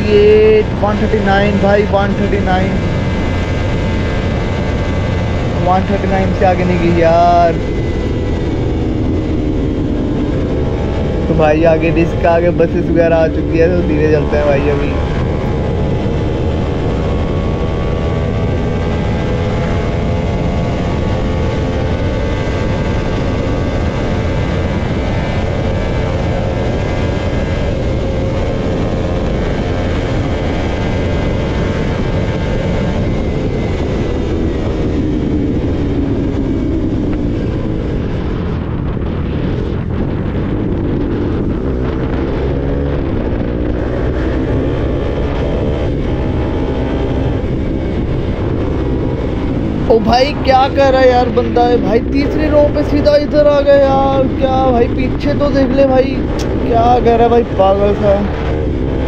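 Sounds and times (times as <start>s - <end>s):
motorcycle engine at speed: 0.0s - 59.0s
wind rushing over microphone: 0.0s - 59.0s.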